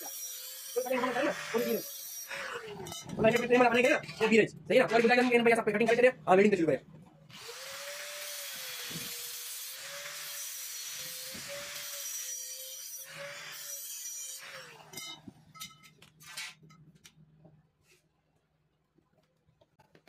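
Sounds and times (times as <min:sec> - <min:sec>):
angle grinder cutting steel: 0:00.0 - 0:04.0, 0:07.3 - 0:15.3
metal tube clinking: 0:15.0 - 0:16.9.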